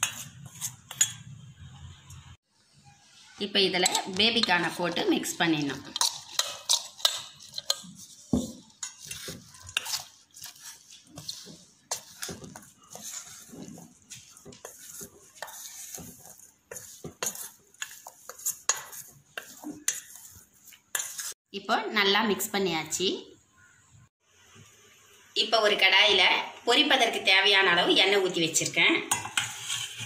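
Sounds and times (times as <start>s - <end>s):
spoon scraping steel bowl: 0.0s - 2.2s, 3.8s - 21.4s, 28.6s - 30.0s.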